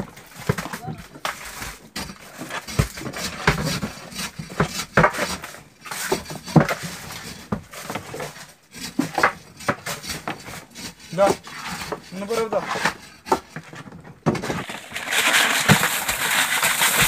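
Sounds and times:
fish knocking and slapping in a box: 14.2s - 17.0s.

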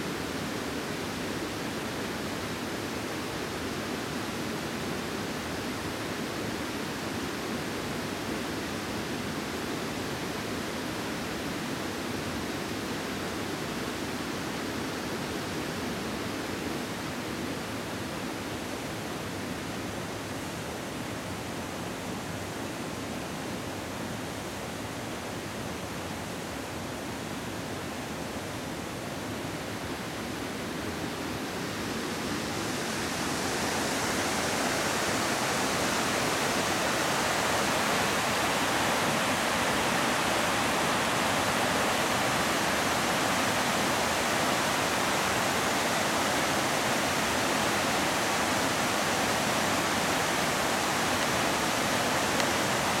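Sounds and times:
waterfall rushing: 29.8s - 53.0s.

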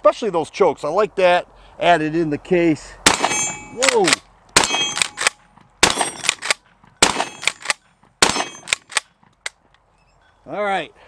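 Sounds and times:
shotgun shots: 3.0s - 9.1s.

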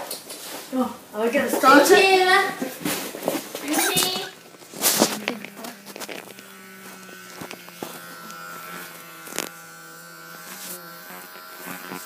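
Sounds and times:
electric hair clippers buzzing: 3.6s - 12.0s.

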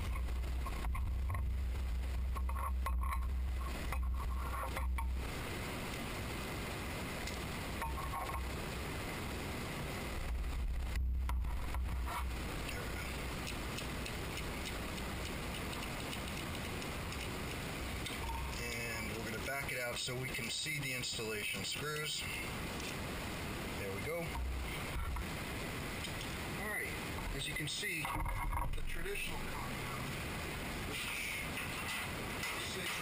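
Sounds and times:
low rumble: 0.0s - 16.0s, 22.4s - 27.4s.

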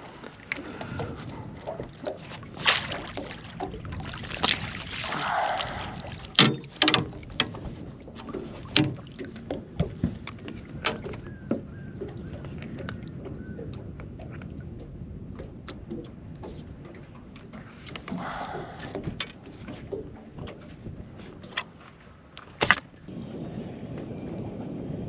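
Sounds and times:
water splashing and sloshing: 0.0s - 23.1s
knocks and clicks of net and rod: 6.3s - 13.8s, 15.4s - 21.8s, 22.4s - 23.0s.

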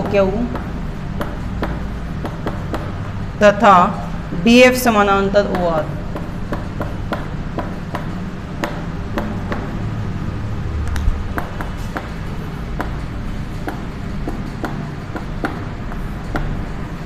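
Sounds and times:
chalk tapping on a chalkboard: 0.0s - 3.1s, 5.4s - 9.8s, 11.3s - 17.0s.

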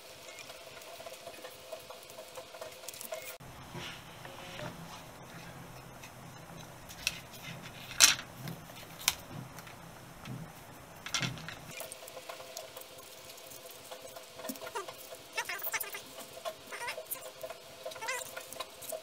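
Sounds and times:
rubber squeaking against plastic: 14.6s - 16.0s, 18.0s - 18.4s.

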